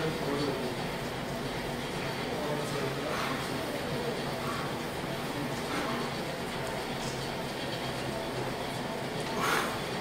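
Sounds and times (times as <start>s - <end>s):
gym room noise: 0.0s - 10.0s
faint voices: 1.9s - 7.3s.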